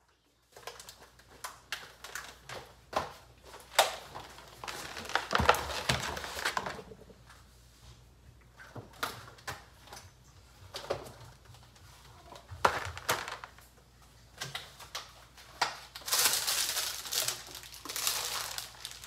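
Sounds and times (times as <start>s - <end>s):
items knocking and clicking: 0.5s - 7.2s, 12.4s - 13.6s
plastic packaging crinkling: 3.4s - 7.0s, 14.7s - 19.0s.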